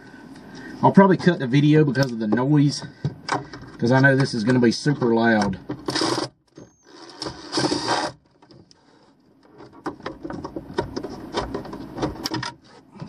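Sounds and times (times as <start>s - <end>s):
clicks and knocks of handling: 1.2s - 5.9s, 8.2s - 13.0s
cordless power driver running: 5.7s - 9.1s.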